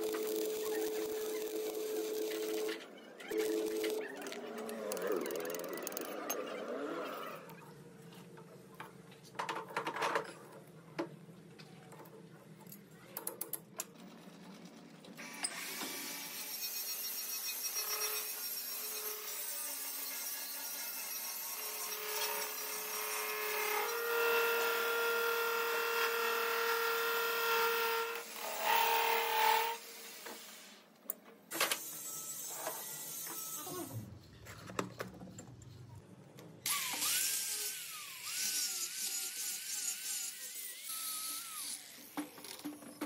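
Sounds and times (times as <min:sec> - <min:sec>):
angle grinder on metal: 0:36.7 - 0:42.4.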